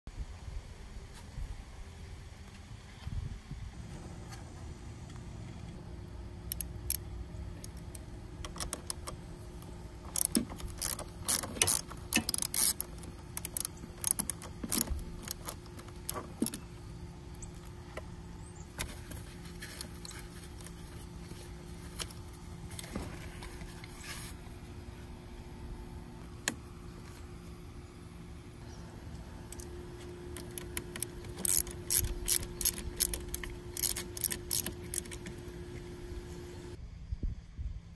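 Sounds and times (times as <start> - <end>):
steady low hum: 0.1 - 37.9
socket wrench clicking: 6.5 - 7.0, 7.6 - 9.2, 10.1 - 16.6, 30.3 - 35.5.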